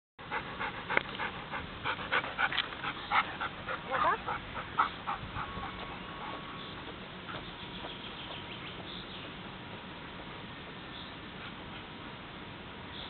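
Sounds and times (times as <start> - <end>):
dog panting: 0.2 - 6.4.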